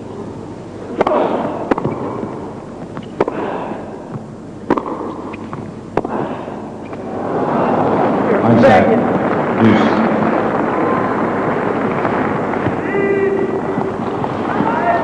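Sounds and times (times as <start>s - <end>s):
racket hitting tennis ball: 0.9s - 7.0s
tennis ball bouncing: 0.9s - 7.0s.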